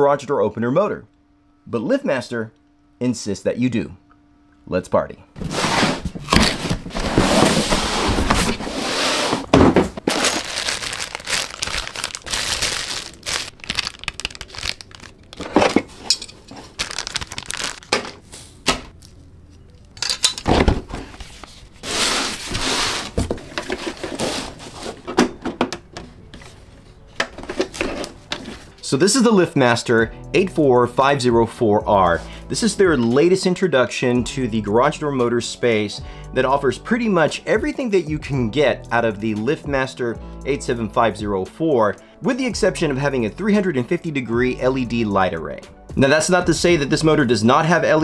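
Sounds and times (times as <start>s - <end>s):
cardboard and wrapping rustling: 5.4s - 19.2s, 20.6s - 25.2s, 26.4s - 28.8s
knocks and thuds of parts: 9.4s - 10.4s, 20.0s - 21.1s, 24.9s - 26.1s.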